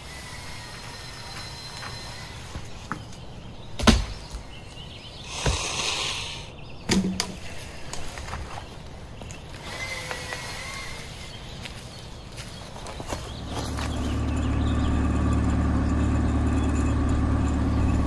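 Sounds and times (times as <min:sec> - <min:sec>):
logs rustling and scraping: 0:00.0 - 0:05.8, 0:07.0 - 0:18.0
log dropped with wooden knock: 0:06.9 - 0:07.4.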